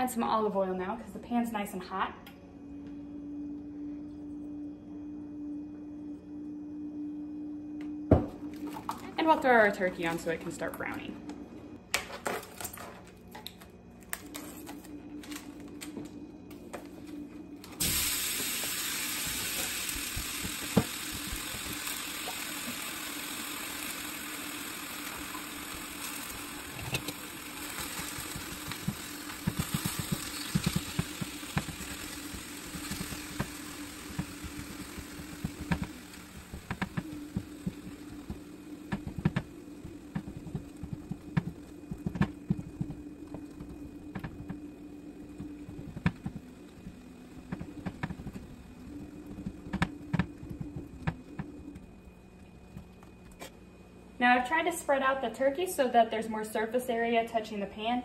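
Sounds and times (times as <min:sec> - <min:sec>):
meat sizzling in a skillet: 0:17.8 - 0:38.4.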